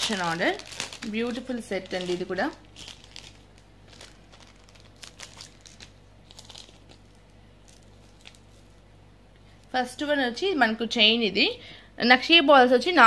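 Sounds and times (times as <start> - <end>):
wrapping rustling: 0.0 - 8.9.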